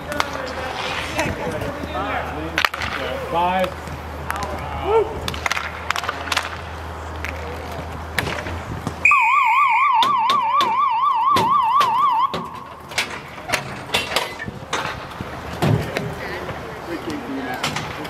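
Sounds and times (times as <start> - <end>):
electronic warbling siren: 9.0 - 12.9.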